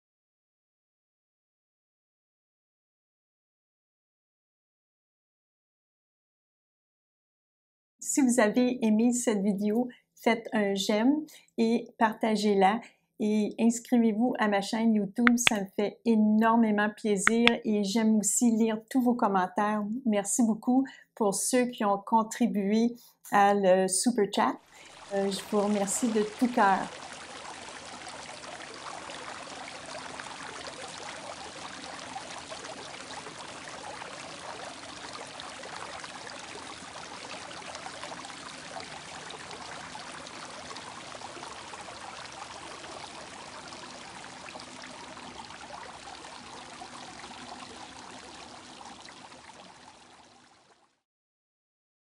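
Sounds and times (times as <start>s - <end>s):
flowing water rushing: 24.7s - 51.0s.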